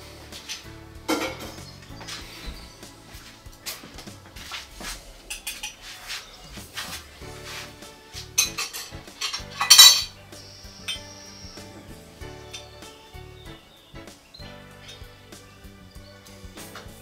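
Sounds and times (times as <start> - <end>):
dishes clattering: 0.4 - 1.7, 8.2 - 10.2
cutlery and dishes clinking: 0.4 - 2.2, 3.7 - 7.0, 8.1 - 10.2.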